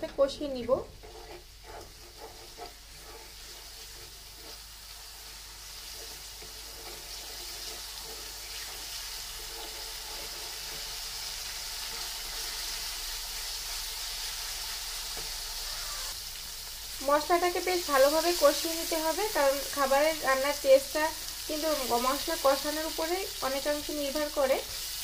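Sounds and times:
wooden spatula stirring in pan: 0.0s - 15.8s
spices sizzling in oil: 0.0s - 25.0s.

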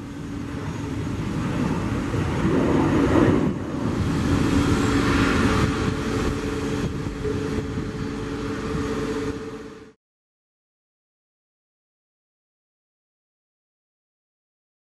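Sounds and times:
jet engine roar: 0.0s - 10.0s
steady droning tone: 0.0s - 10.0s.

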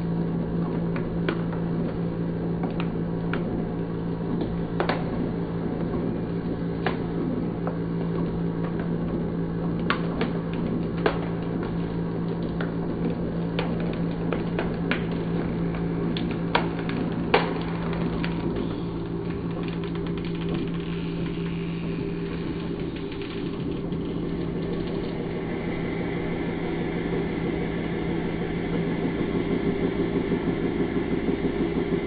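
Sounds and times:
hydraulic press motor droning: 13.8s - 32.0s.

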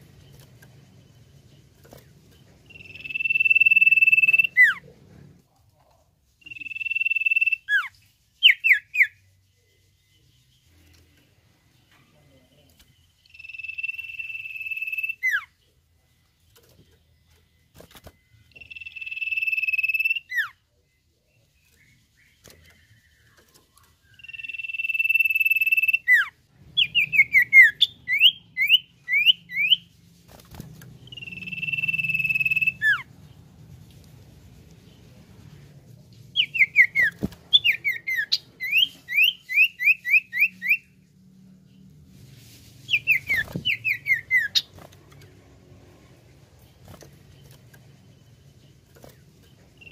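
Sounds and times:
bird long level whistles: 31.1s - 33.0s.

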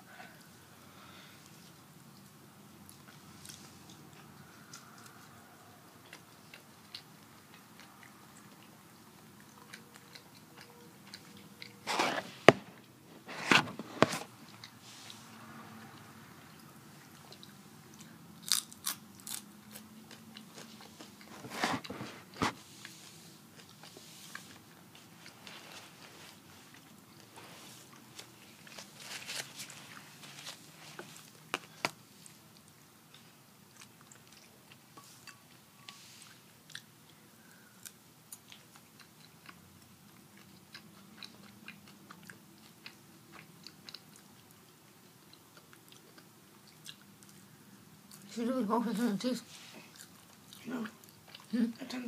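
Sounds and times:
chewing: 1.4s - 48.4s, 49.6s - 52.0s
chips crunching: 18.4s - 19.8s.

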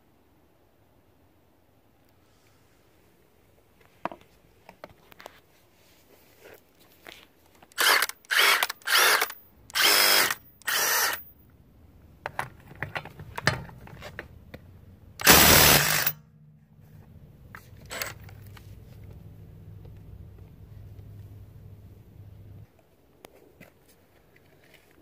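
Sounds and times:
impact driver hammering: 15.2s - 16.2s.

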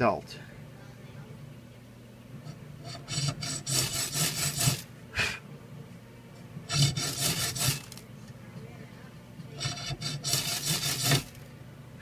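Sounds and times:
blade rasping on metal rod: 2.4s - 4.9s, 6.7s - 8.0s, 9.6s - 11.4s.

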